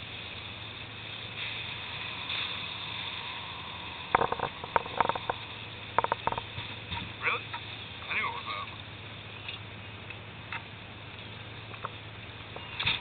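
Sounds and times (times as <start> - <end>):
water rushing against hull: 0.0 - 9.3
boat engine hum: 0.0 - 13.0.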